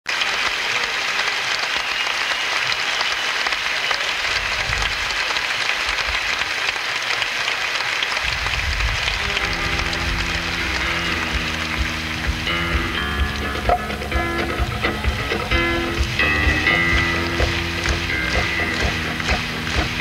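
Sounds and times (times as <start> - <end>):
crowd applauding and cheering: 0.1 - 20.0
band playing notes: 8.8 - 20.0.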